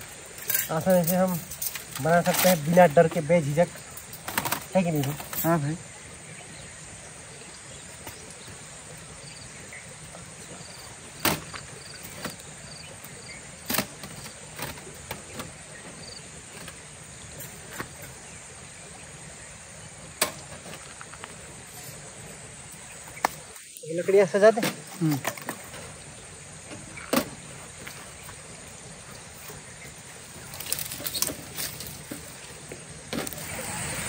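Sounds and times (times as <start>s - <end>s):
stream rushing: 31.4s - 34.0s.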